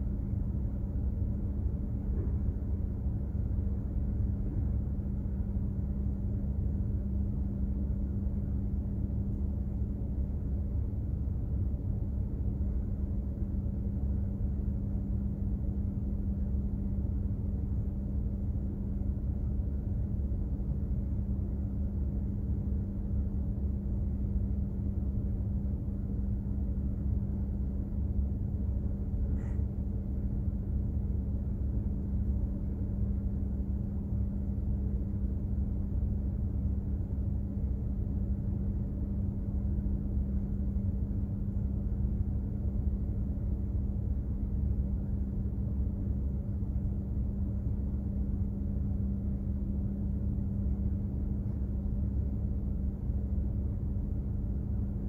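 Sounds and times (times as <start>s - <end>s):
ship engine rumble: 0.0s - 6.8s
machinery hum: 0.0s - 55.0s.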